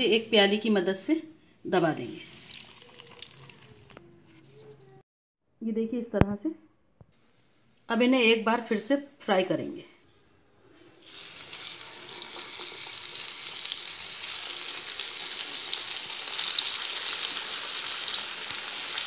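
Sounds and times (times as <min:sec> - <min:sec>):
food sizzling in hot oil: 0:11.0 - 0:19.0
oil crackling: 0:11.0 - 0:19.0.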